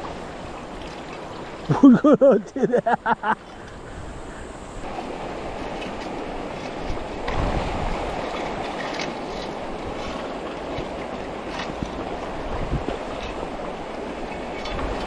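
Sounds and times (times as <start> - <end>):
stream rushing over rocks: 4.8 - 15.0.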